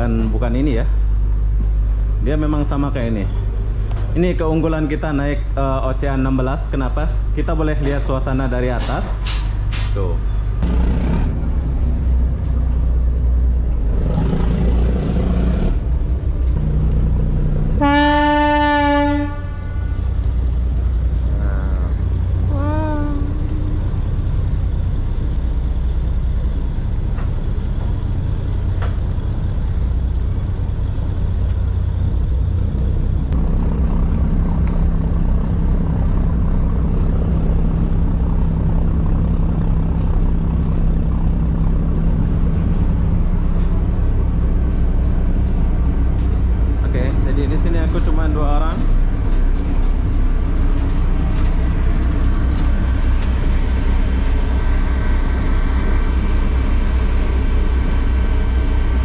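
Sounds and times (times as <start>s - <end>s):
ferry engines droning: 0.0s - 59.0s
steady hum: 10.3s - 59.0s
ship's horn blast: 17.4s - 24.4s.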